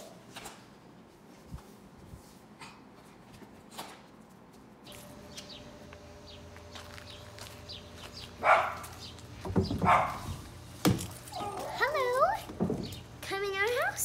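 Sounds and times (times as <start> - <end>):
steady low hum: 4.8 - 14.0
dog barks: 8.4 - 9.0, 9.8 - 10.4.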